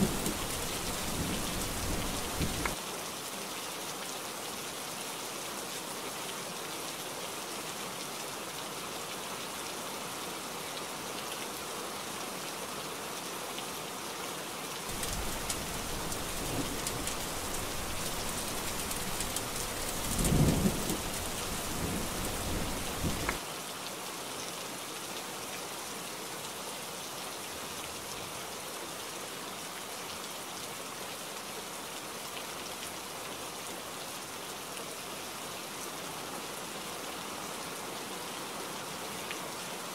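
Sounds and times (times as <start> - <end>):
heavy rain hissing: 0.0 - 2.8, 14.9 - 23.4
thunder rumble and clap: 0.0 - 2.8, 14.9 - 23.4.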